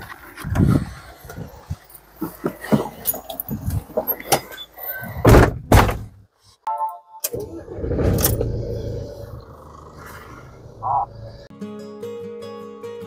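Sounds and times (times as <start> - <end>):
vehicle door thumping shut: 5.2 - 6.1
engine cranking and starting: 7.3 - 11.5.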